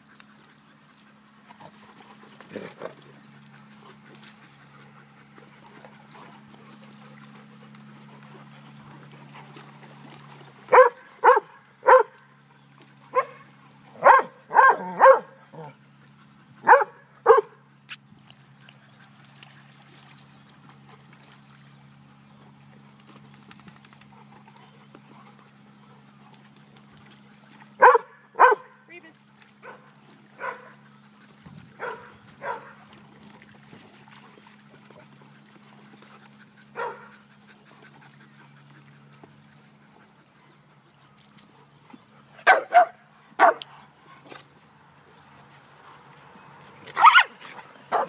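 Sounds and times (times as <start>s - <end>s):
dog barking: 10.7s - 12.1s, 14.0s - 15.4s, 16.6s - 17.6s, 27.8s - 28.7s, 30.4s - 30.7s, 31.8s - 32.7s, 36.8s - 37.1s, 42.4s - 43.6s, 47.0s - 47.3s.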